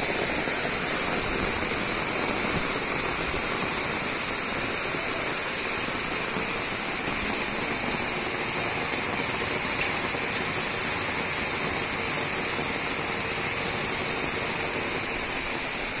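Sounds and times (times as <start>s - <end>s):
heavy rain on concrete: 0.0s - 16.0s.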